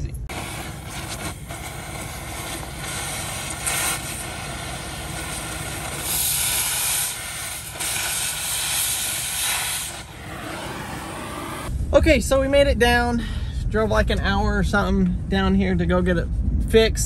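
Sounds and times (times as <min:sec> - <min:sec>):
cutting torch hissing: 0:00.3 - 0:11.7.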